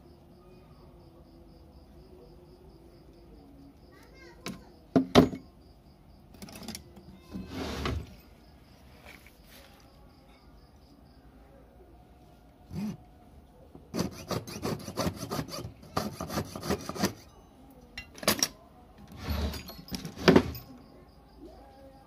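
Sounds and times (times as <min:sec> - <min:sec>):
saw rasping through metal: 0:13.9 - 0:17.3.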